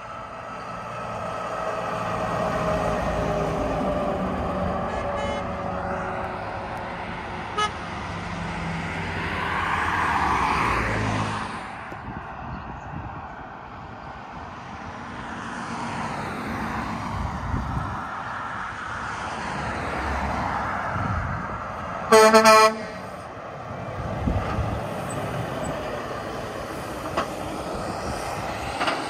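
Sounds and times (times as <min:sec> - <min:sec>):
light road traffic: 0:00.0 - 0:29.0
tyre rush of passing van: 0:00.0 - 0:29.0
short sharp horn toot: 0:04.9 - 0:05.5, 0:22.1 - 0:23.2
truck diesel engine droning: 0:21.2 - 0:29.0.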